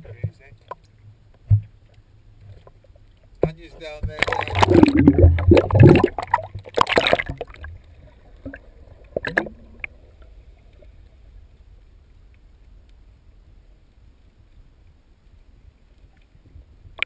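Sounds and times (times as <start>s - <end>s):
water splashing and sloshing: 0.0s - 12.7s.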